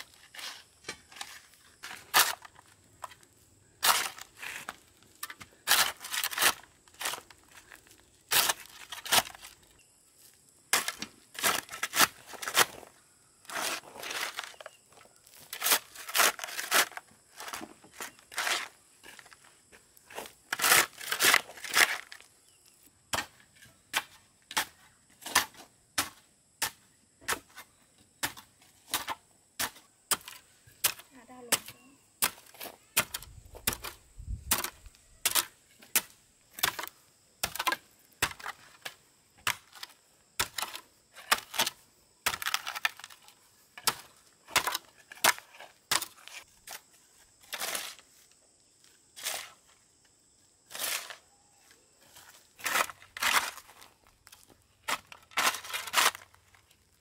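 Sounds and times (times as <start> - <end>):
crunching scrapes: 0.0 - 22.4, 52.0 - 57.0.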